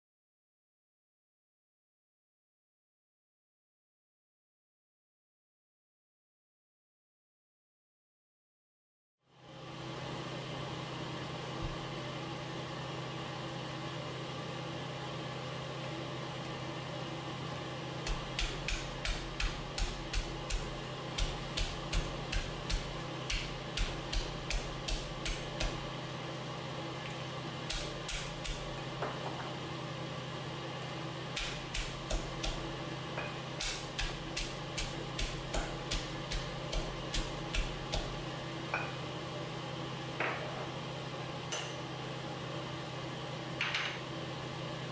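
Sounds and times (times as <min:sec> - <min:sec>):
steady hum: 0:09.3 - 0:44.9
pestle pounding in stone mortar: 0:18.1 - 0:25.8, 0:31.4 - 0:32.7, 0:33.6 - 0:38.2.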